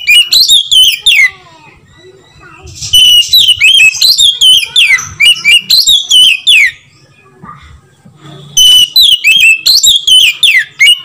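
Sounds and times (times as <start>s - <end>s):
bird singing whistled notes: 0.0s - 1.3s, 1.9s - 6.9s, 8.6s - 11.0s.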